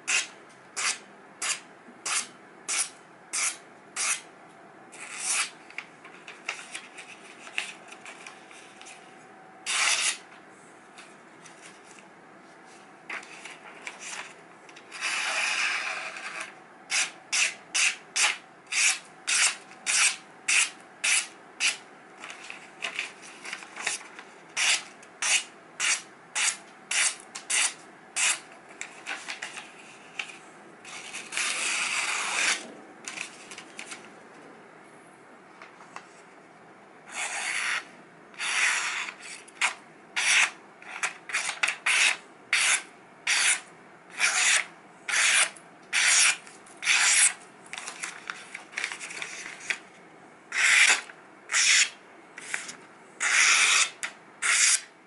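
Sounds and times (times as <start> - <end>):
paper rustling: 28.7 - 30.4, 46.1 - 49.8
knife slicing paper: 44.2 - 49.8, 50.5 - 54.9.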